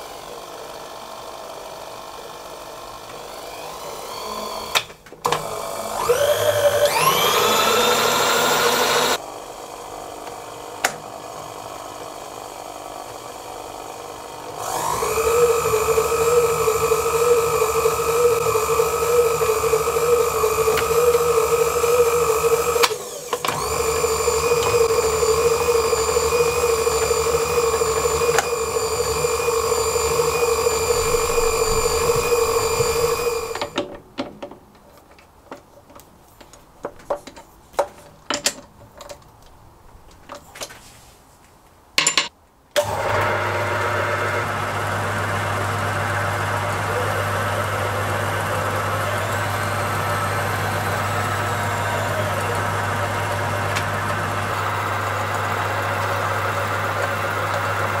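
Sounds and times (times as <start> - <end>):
lathe motor humming: 0.0 - 33.8, 42.8 - 58.0
power feed motor whine: 0.0 - 33.8, 42.8 - 58.0
handling clicks and knocks: 33.6 - 40.8, 42.0 - 42.4.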